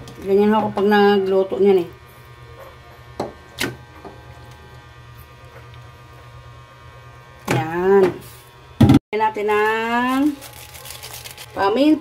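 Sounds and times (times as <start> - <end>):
electrical hum: 0.0 - 12.0.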